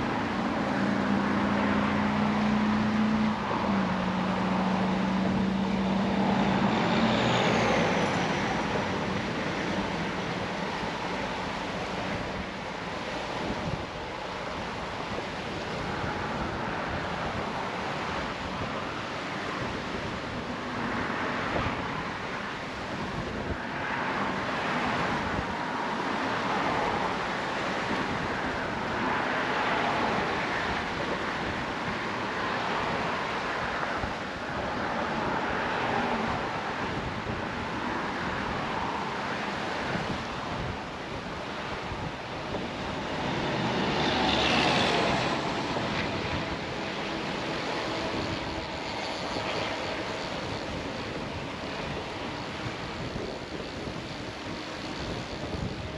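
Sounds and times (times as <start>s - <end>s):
choppy sea water: 0.0s - 55.9s
wind on microphone: 0.0s - 55.9s.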